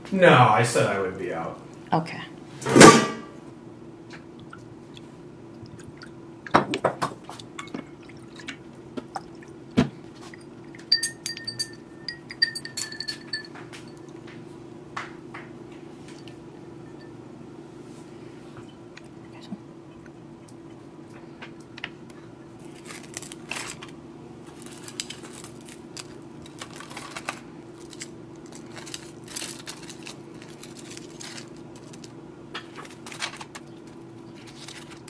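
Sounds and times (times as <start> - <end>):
steady low hum: 0.0 - 35.0
glass ringing: 10.8 - 14.1, 16.8 - 17.2.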